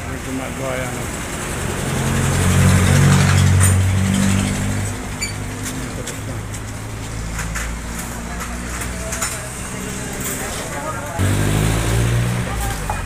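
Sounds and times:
motorcycle engine revving and idling: 11.2s - 13.0s.

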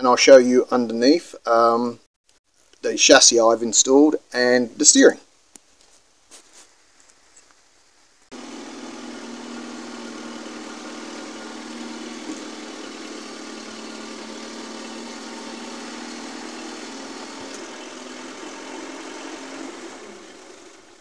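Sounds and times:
forklift engine and hydraulics drone: 8.3s - 21.0s.

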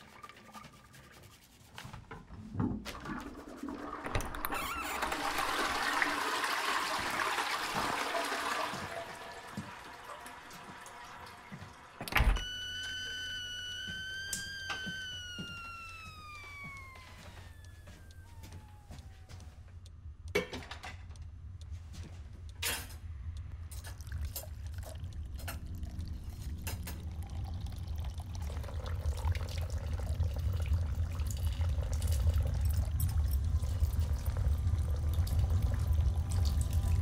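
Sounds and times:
water running into a sink: 2.9s - 12.0s, 23.8s - 37.0s
low rumbling drone: 22.6s - 37.0s.

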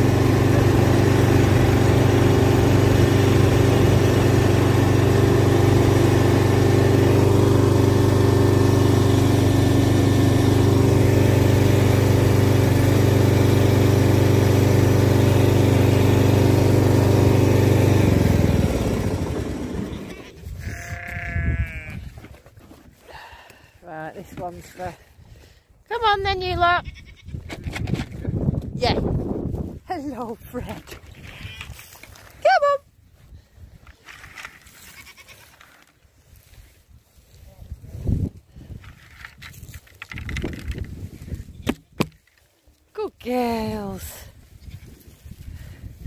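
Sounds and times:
tractor engine running: 0.0s - 21.2s
animal bleat: 20.0s - 22.2s, 26.7s - 27.4s, 31.1s - 31.8s, 34.8s - 35.5s.

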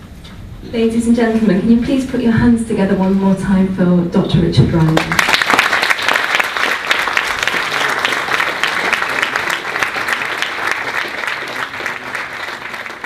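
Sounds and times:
audience applauding: 5.0s - 13.0s.

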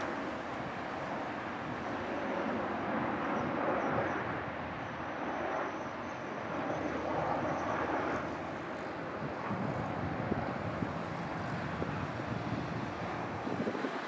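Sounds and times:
jet engines rushing: 0.0s - 14.0s.

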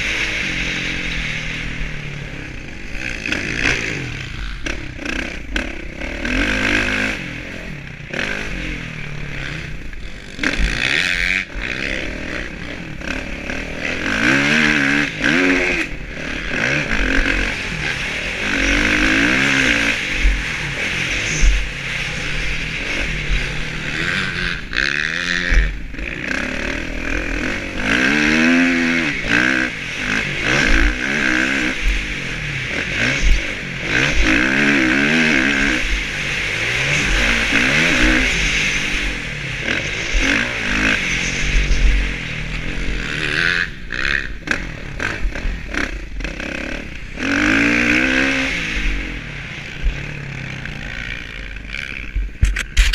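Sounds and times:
motocross bike engine revving: 0.0s - 52.9s
wind rumbling on microphone: 48.6s - 52.9s.

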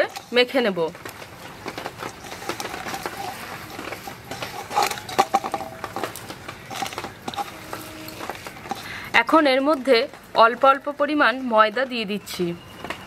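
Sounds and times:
vegetables and flour rustling: 0.0s - 13.0s
fingers scraping steel bowl: 2.0s - 8.9s.

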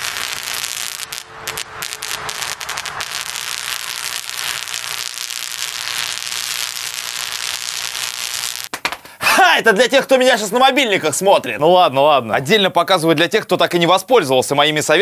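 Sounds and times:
electrical discharge crackling: 0.0s - 9.0s.

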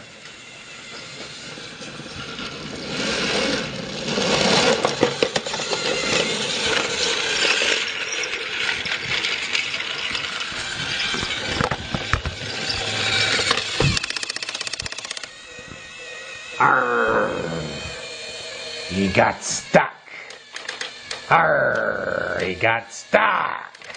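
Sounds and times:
toy train clattering on track: 0.0s - 16.5s, 20.2s - 22.6s, 23.7s - 23.9s.

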